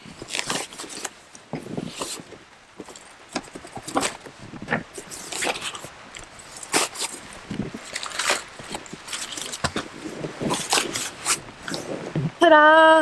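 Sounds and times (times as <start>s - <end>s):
cardboard scrapes and rustles: 0.0s - 12.3s
cardboard box being cut open: 7.8s - 11.8s.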